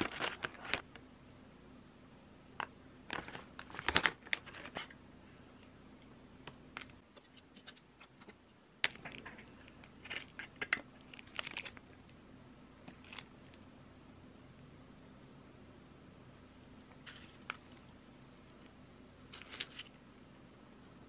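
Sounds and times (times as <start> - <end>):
plastic wrappers crinkling: 6.8 - 12.0, 19.3 - 20.0
cookie crunching: 7.6 - 12.1.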